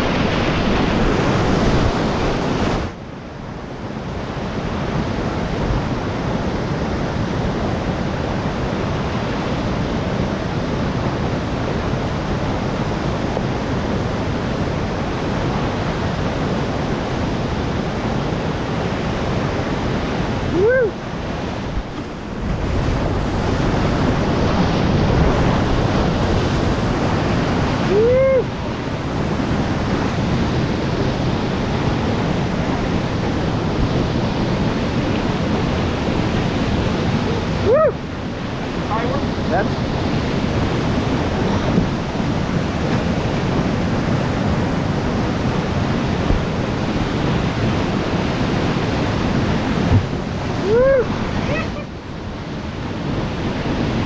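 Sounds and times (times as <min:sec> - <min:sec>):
whitewater rushing over rocks: 0:00.0 - 0:54.0
person calling out: 0:20.5 - 0:21.0, 0:27.9 - 0:28.5, 0:37.6 - 0:38.0, 0:50.6 - 0:52.0.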